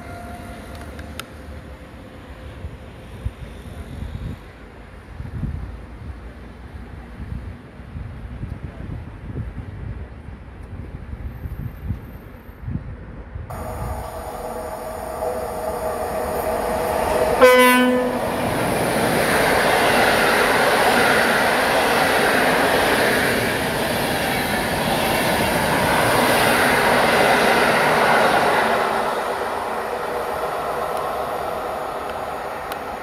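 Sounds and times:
locomotive horn: 13.5 - 18.4
train passing clattering over rails: 13.5 - 33.0.

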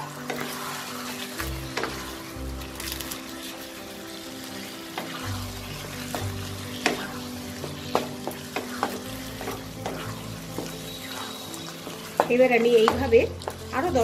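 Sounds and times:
low sizzle of frying: 0.0 - 14.0
spatula scraping a wok: 0.0 - 14.0.

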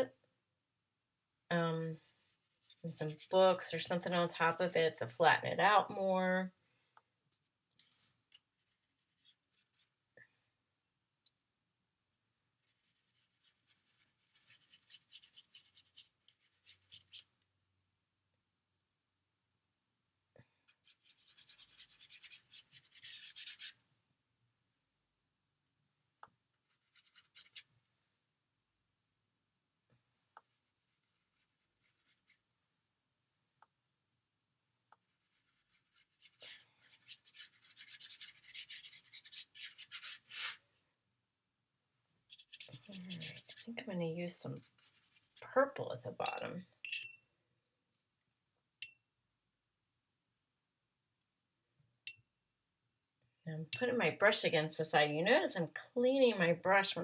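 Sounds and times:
paintbrush scratching in paint pan: 2.0 - 4.6, 7.8 - 10.0, 12.6 - 17.3, 20.6 - 23.8, 26.6 - 27.7, 30.5 - 32.4, 35.0 - 40.6, 42.3 - 43.9, 44.5 - 45.5.

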